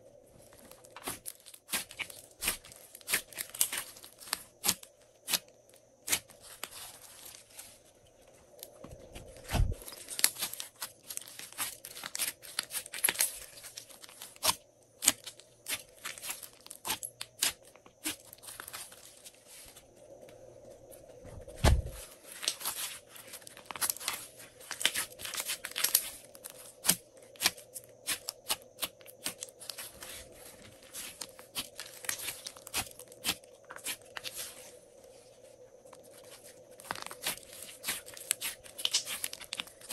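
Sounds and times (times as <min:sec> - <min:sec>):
slime squishing with sticky pops: 0:00.7 - 0:05.4, 0:10.0 - 0:18.8, 0:30.9 - 0:34.4, 0:36.8 - 0:39.9.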